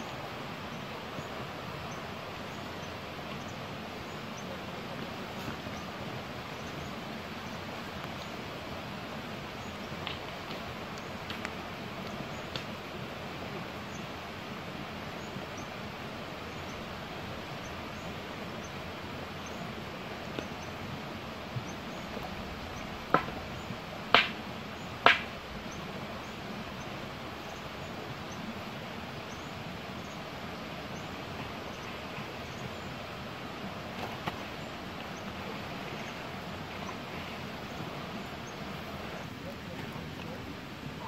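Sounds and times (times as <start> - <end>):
outdoor hiss: 0.0 - 41.0
stick tapping on stony ground: 23.1 - 23.4, 24.1 - 24.4, 25.0 - 25.3.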